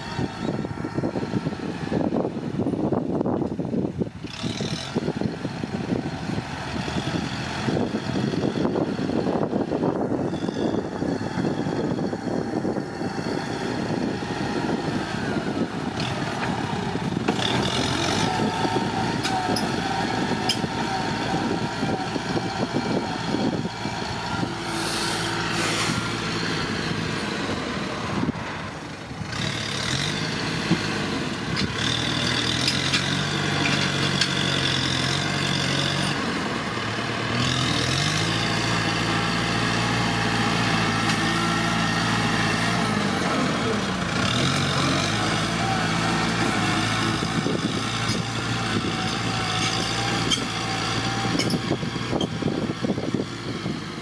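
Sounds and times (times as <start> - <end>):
tractor diesel engine working: 0.0 - 54.0
blade pushing dirt: 23.9 - 27.4.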